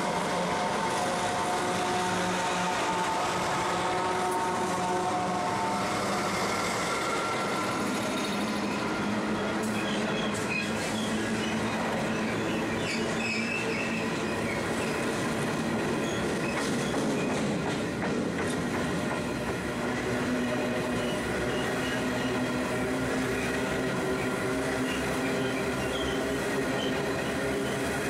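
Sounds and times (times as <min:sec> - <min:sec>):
freight wagons rumbling on rails: 0:00.0 - 0:28.0
locomotive engine: 0:00.0 - 0:28.0
high wheel squeals: 0:04.6 - 0:17.6, 0:20.4 - 0:28.0.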